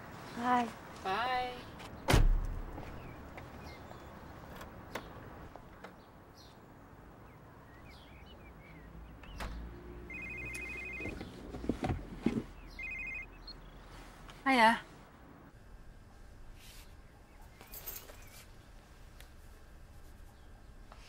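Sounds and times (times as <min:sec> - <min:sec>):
telephone ringing electronic trill: 0:10.1 - 0:11.1, 0:12.8 - 0:13.4.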